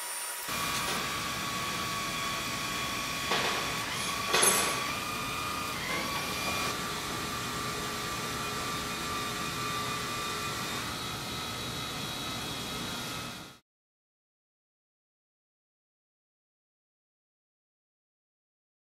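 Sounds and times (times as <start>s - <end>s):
electric motors whirring: 0.0s - 13.6s.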